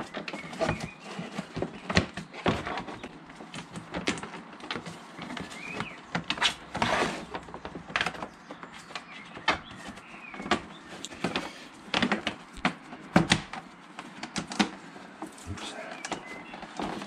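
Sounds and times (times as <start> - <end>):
plastic clicks and knocks: 0.0 - 14.8
scraping rustle: 0.0 - 17.0.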